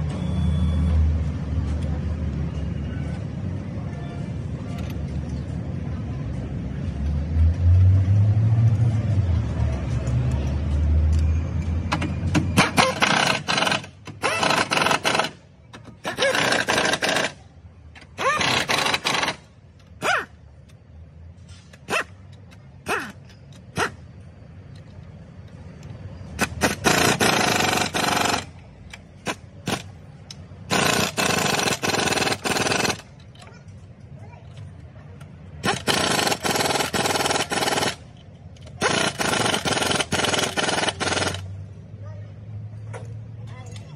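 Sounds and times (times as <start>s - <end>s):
pneumatic wrench bursts: 12.6s - 17.5s, 18.1s - 20.4s, 21.5s - 24.2s, 26.4s - 30.0s, 30.6s - 33.2s, 35.6s - 41.5s
power ratchet spinning nuts: 16.0s - 17.4s, 18.2s - 19.5s, 26.4s - 28.6s, 30.7s - 33.1s, 35.6s - 41.5s.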